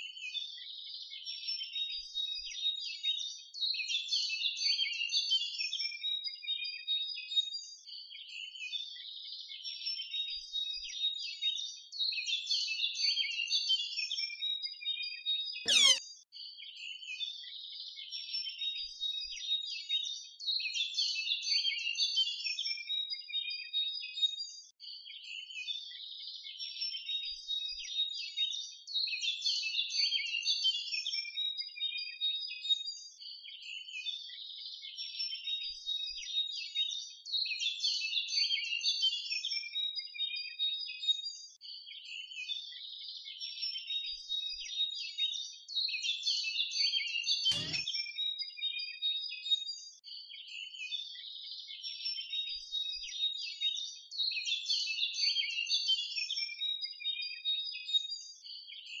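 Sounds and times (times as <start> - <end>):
small birds chirping: 15.7 - 16.0
sharp click: 47.5 - 47.9.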